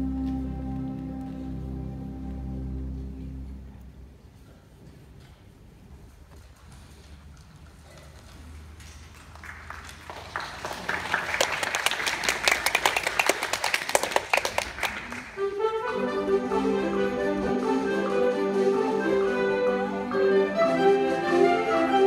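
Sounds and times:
brass and woodwind chords: 0.0s - 4.0s, 15.4s - 22.0s.

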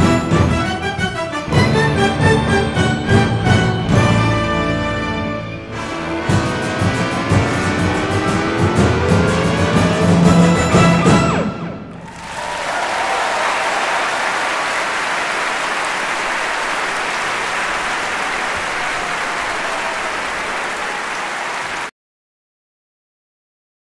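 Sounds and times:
music: 0.0s - 12.0s
crowd applauding: 11.9s - 21.9s.

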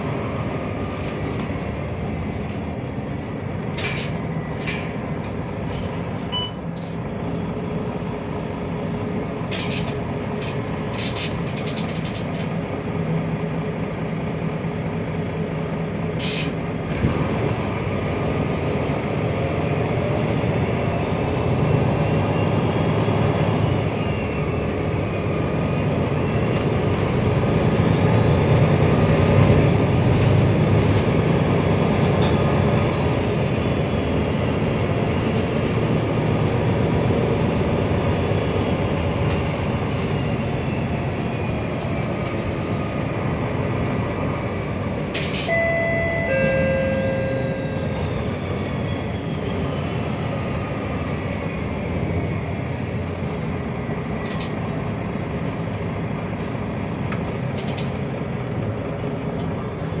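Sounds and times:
bus engine rumble and whine: 0.0s - 60.0s
two-note electronic chime: 45.5s - 48.1s.

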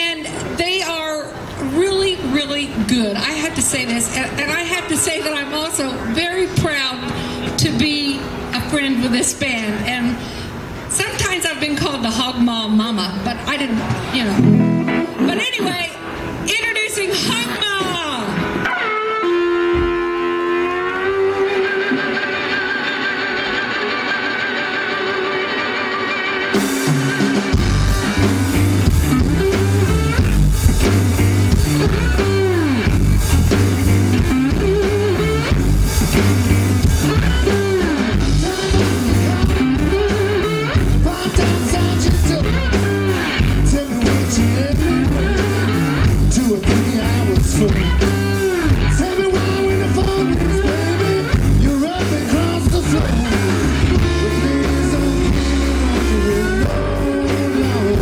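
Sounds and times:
electric blues band playing: 0.0s - 58.0s
lead guitar bending notes: 13.8s - 16.5s, 17.4s - 58.0s.

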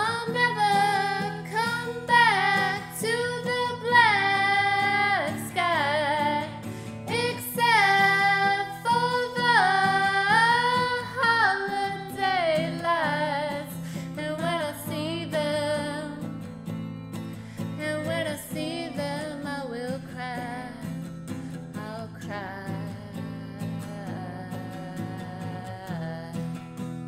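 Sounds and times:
woman singing with vibrato: 0.0s - 16.3s, 17.8s - 21.0s, 21.7s - 26.6s.

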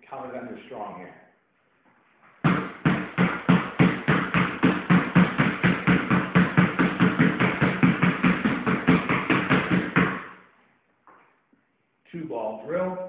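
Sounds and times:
basketballs bouncing on floor: 2.4s - 10.4s.

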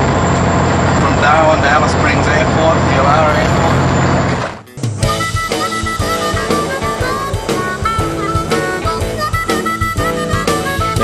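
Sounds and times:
instrumental music with drum beat: 4.6s - 11.0s.

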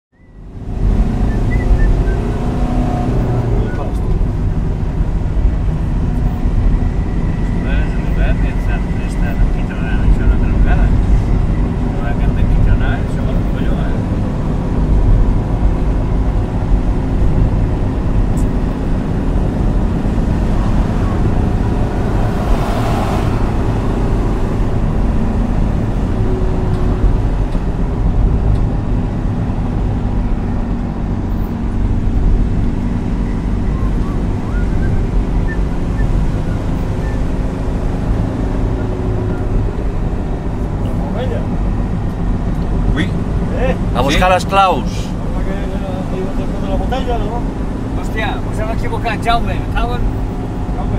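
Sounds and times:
car interior road rumble: 0.2s - 50.9s
faint engine hum: 0.2s - 50.9s
rushing noise: 17.8s - 32.7s.

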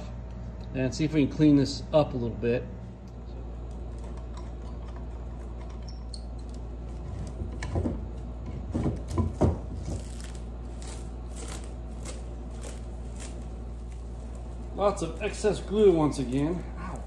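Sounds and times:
steady low hum: 0.0s - 17.0s
plastic wrap crinkling: 9.8s - 17.0s.

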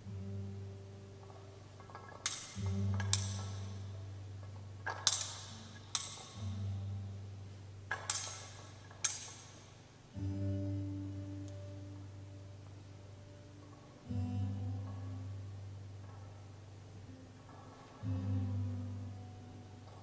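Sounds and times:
deep sustained bass note: 6.4s - 7.9s, 10.2s - 17.3s, 18.0s - 19.9s.

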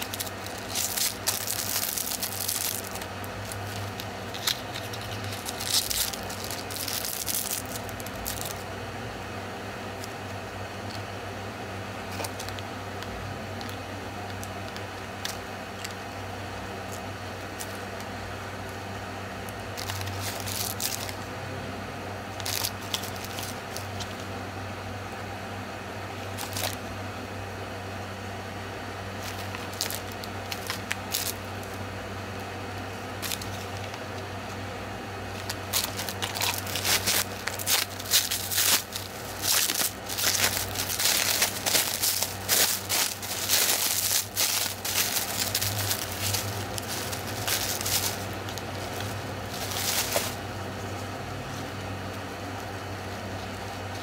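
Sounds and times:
plastic wrap crinkling: 0.0s - 8.6s, 12.1s - 12.7s, 19.7s - 21.3s, 22.4s - 24.2s, 26.3s - 26.8s, 29.2s - 31.8s, 33.2s - 34.0s, 35.3s - 50.4s.

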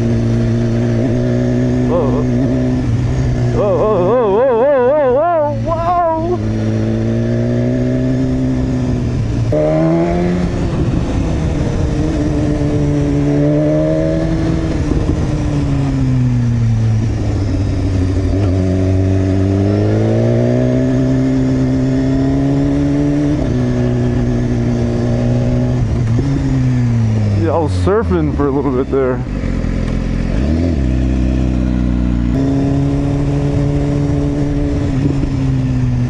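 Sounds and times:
motorcycle engine revving: 0.0s - 36.0s
wind and road noise: 0.0s - 36.0s.

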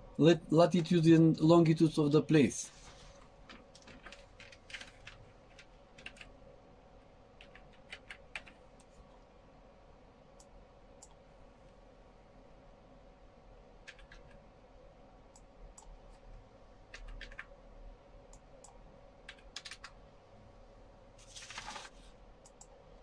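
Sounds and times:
keyboard typing: 3.4s - 6.3s, 7.4s - 8.9s, 13.8s - 14.4s, 16.9s - 17.5s, 18.6s - 20.0s.

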